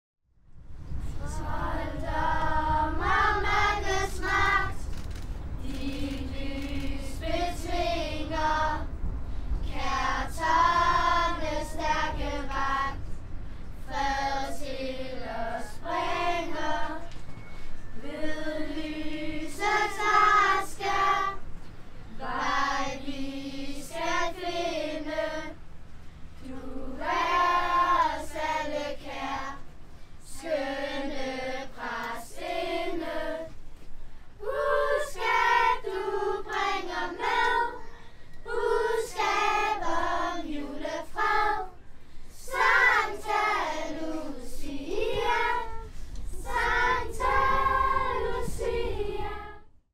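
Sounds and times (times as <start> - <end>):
children's choir singing: 1.2 - 4.9, 5.6 - 8.9, 9.6 - 13.0, 13.8 - 17.2, 17.9 - 21.5, 22.1 - 25.6, 26.4 - 33.6, 34.4 - 49.7.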